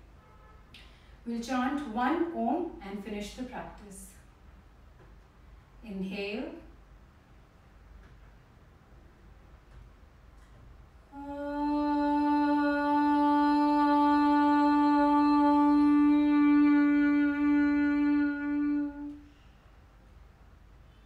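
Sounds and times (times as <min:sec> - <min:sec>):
woman chanting om: 0:11.1 - 0:19.3.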